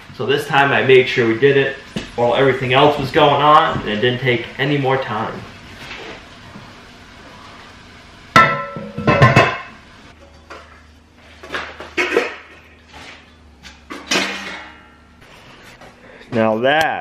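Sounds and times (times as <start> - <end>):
metal cookware clanking: 8.4 - 10.7, 13.9 - 15.1.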